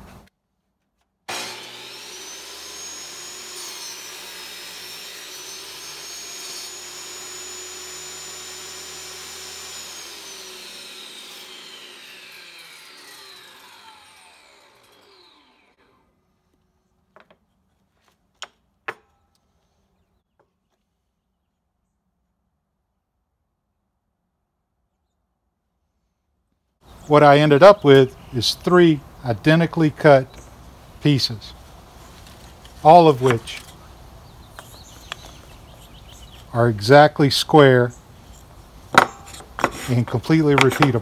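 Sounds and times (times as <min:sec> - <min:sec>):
saw blade cutting wood: 0:01.3 - 0:16.1, 0:32.2 - 0:33.9, 0:38.2 - 0:41.0
table saw motor whining: 0:01.3 - 0:16.3, 0:32.4 - 0:36.6, 0:37.9 - 0:41.0.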